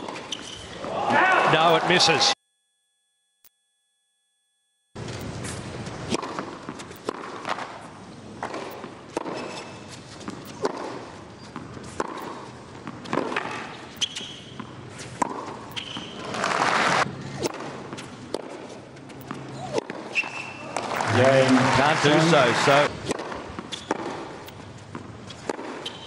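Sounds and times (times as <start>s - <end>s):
shoe squeaks on court: 0.0s - 0.8s, 8.6s - 16.6s, 19.1s - 20.8s, 23.6s - 26.0s
tennis ball bouncing: 5.2s - 16.6s, 17.4s - 21.1s, 23.0s - 26.0s
racquet striking tennis ball: 5.9s - 7.8s, 8.4s - 11.1s, 11.9s - 16.7s, 23.0s - 26.0s.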